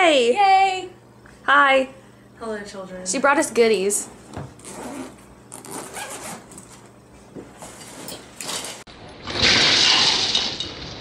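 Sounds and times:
bag zipper pulled open: 4.6s - 6.6s.

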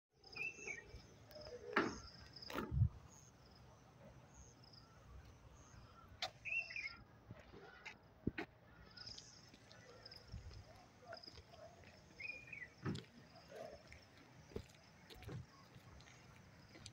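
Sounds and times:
birds chirping: 0.2s - 16.9s.

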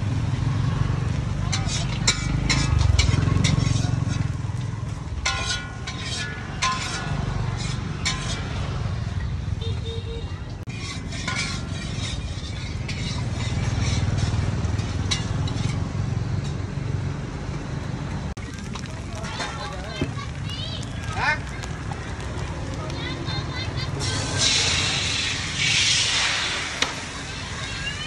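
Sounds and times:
metal utensils clinking on pans: 1.5s - 4.4s, 5.2s - 8.7s, 10.7s - 15.9s.

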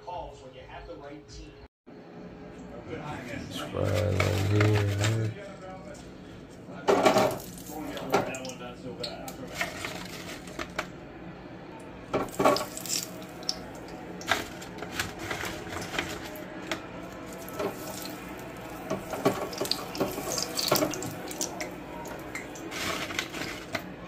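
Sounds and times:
fries clattering into basket: 6.9s - 8.5s, 9.3s - 10.9s, 12.1s - 23.9s.

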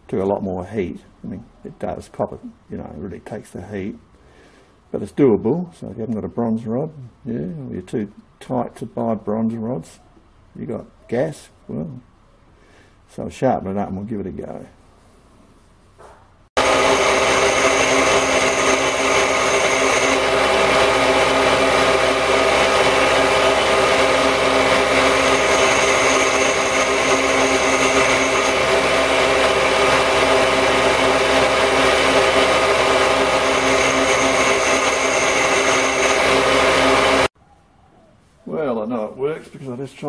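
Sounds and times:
bench grinder grinding metal: 16.6s - 37.3s
thin high tone: 16.6s - 37.3s.

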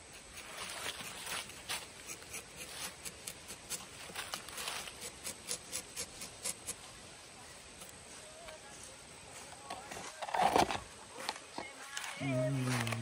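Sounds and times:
knife scraping tree bark: 0.1s - 6.8s.

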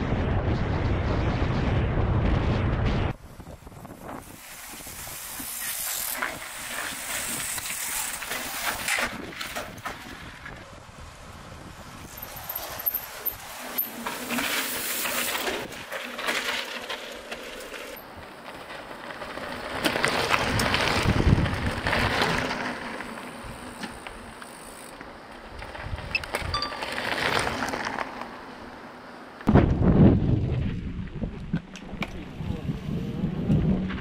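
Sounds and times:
bike tyres crunching over gravel: 3.2s - 34.0s
light clinking from bikes: 26.1s - 27.1s.

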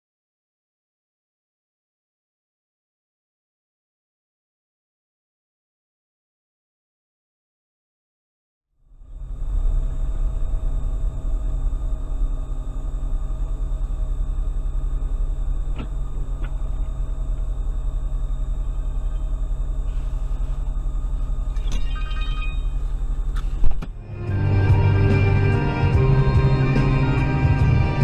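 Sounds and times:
car engine and road rumble: 8.8s - 28.0s
ringing tones: 21.3s - 23.4s.

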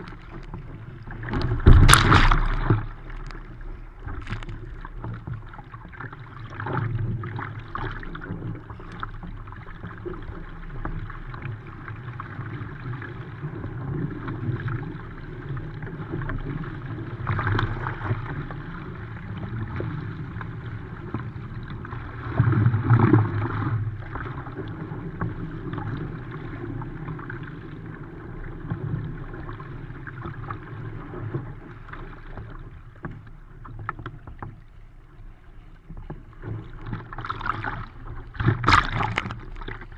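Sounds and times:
choppy water slapping a hull: 0.0s - 39.9s
paddle blades splashing: 0.0s - 39.9s.

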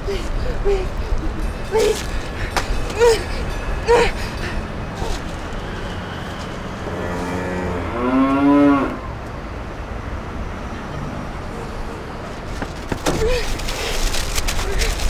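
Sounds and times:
cow mooing: 6.8s - 9.0s.

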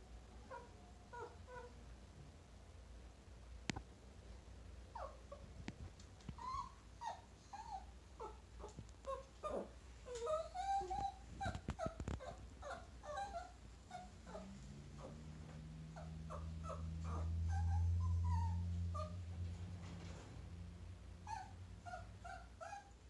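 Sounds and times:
small dog whimpering: 0.5s - 1.8s, 4.9s - 5.4s, 6.4s - 15.2s, 16.0s - 19.2s, 21.2s - 23.0s.

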